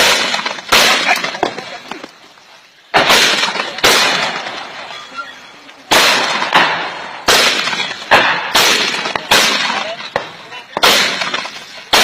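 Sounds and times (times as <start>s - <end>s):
mortars firing with echo: 0.0s - 2.0s, 2.9s - 4.9s, 5.9s - 12.0s.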